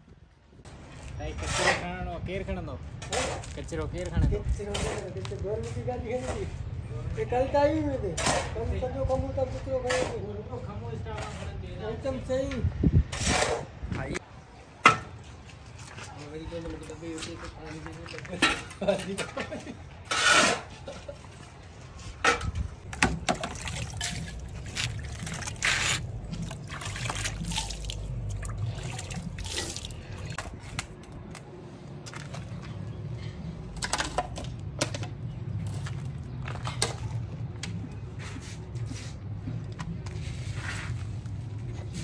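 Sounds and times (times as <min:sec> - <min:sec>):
shovel scraping and knocking: 0:00.9 - 0:02.0, 0:03.0 - 0:06.6, 0:08.1 - 0:08.7, 0:09.8 - 0:10.3, 0:13.1 - 0:13.7, 0:18.1 - 0:26.6
water pouring and trickling: 0:23.2 - 0:30.4.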